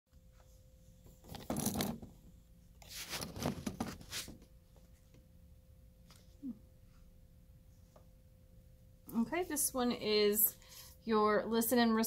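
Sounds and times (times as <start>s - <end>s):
book scraping and rustling on desk: 2.8s - 4.5s.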